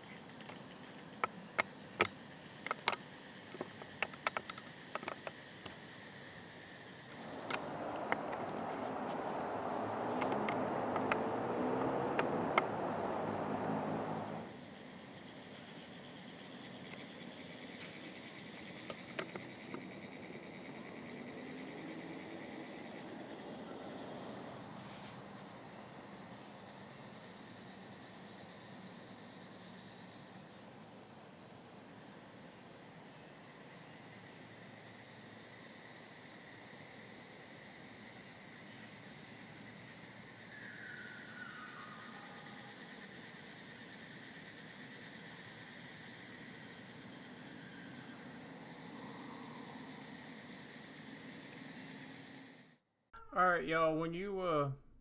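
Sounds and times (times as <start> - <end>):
fast ticking insect call: 0.0 - 52.7
insect chorus: 0.0 - 53.5
rushing noise with low drone: 7.1 - 14.6.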